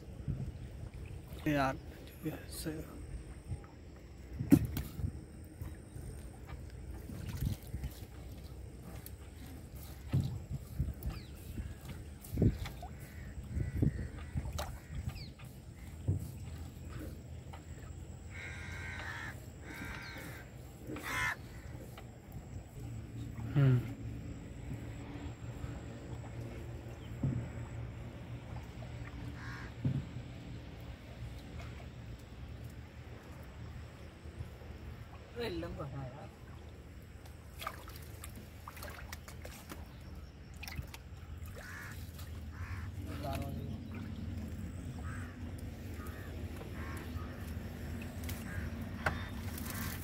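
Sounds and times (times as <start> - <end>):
crow cawing: 12.9 - 15.0, 18.3 - 20.4, 21.0 - 21.8, 29.4 - 29.7, 41.6 - 43.0, 45.0 - 45.4, 46.0 - 47.5, 48.4 - 49.9
water dripping off net: 37.2 - 39.8.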